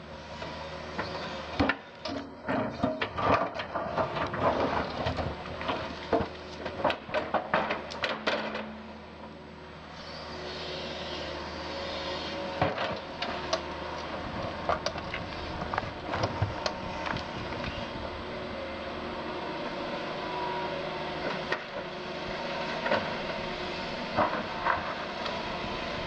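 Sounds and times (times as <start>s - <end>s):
excavator diesel engine running: 0.0s - 26.0s
sharp knocks and cracks: 2.5s - 8.7s.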